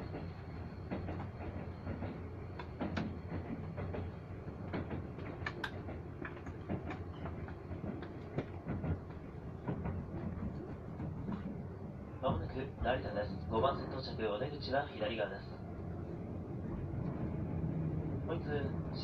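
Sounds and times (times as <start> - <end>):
train rumbling: 0.0 - 19.0
wheels clicking over track: 0.9 - 11.6.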